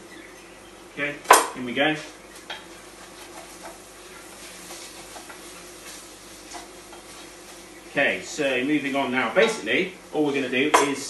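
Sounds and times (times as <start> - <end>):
vegetables sizzling in a pot: 2.3 - 10.6.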